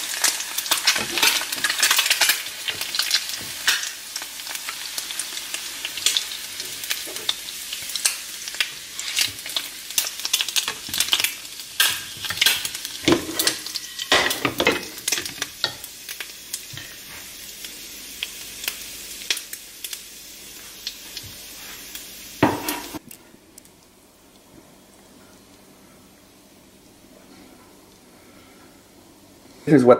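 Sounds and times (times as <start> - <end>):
hot fat sizzling in frying pan: 0.0 - 23.7.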